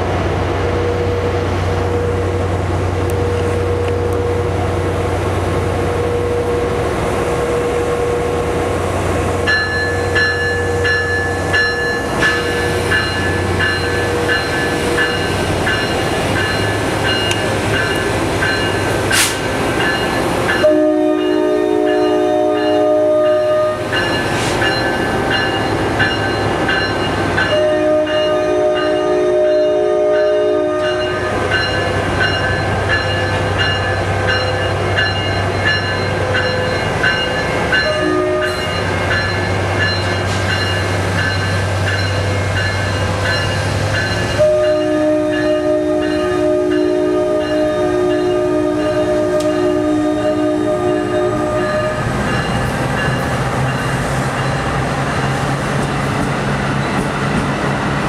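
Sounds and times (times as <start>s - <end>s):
locomotive horn blasts: 20.6s - 23.9s, 27.5s - 31.2s, 37.8s - 38.8s, 44.4s - 52.1s.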